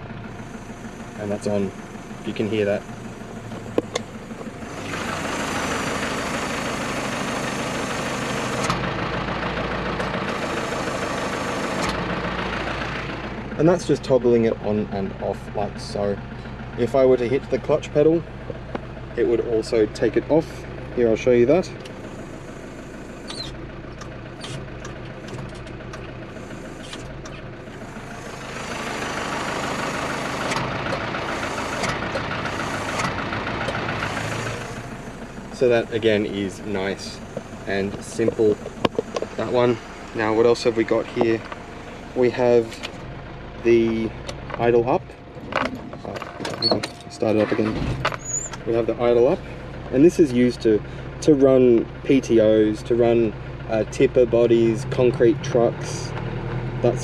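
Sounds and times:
truck engine idling: 0.0 - 57.0.

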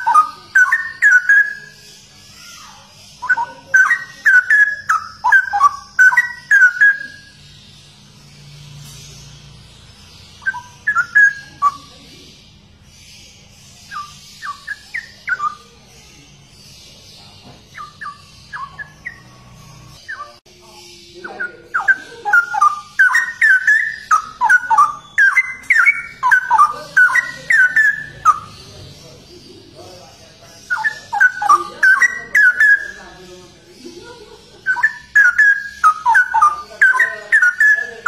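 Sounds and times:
bird singing whistled phrases: 0.0 - 7.4, 10.4 - 12.0, 13.8 - 15.7, 17.7 - 19.3, 20.0 - 20.4, 21.1 - 28.5, 30.6 - 33.0, 34.6 - 38.0.

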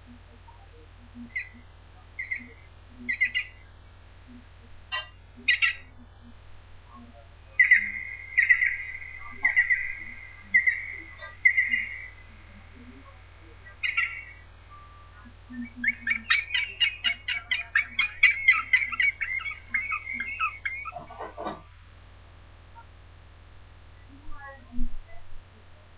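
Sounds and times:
woodpecker calling: 0.1 - 3.7, 4.3 - 6.1, 6.9 - 21.7.

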